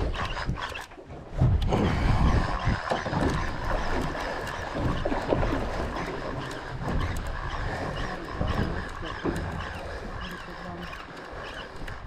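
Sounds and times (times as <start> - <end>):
fishing reel cranking: 0.0 - 1.0, 1.7 - 12.0
wind buffeting microphone: 0.0 - 12.0
light ticks: 2.9 - 12.0.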